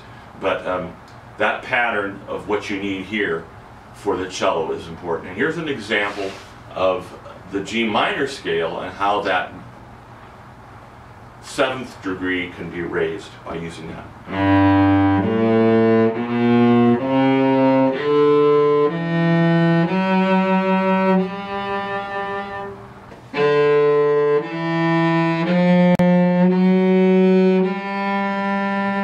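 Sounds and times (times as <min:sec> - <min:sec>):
solo cello bowing a scale: 0:14.3 - 0:29.0.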